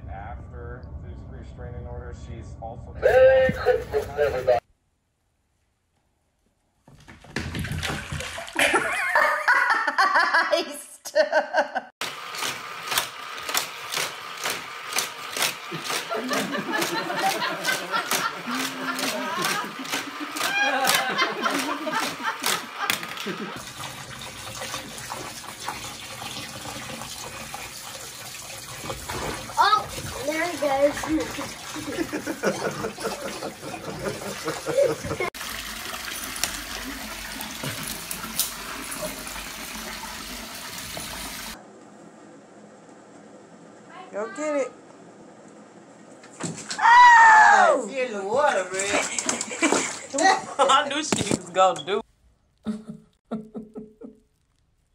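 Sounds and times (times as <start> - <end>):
tap water filling a bathtub: 6.9 - 9.3, 12.0 - 41.6, 48.5 - 50.4
toy track motor whirring: 12.0 - 23.4.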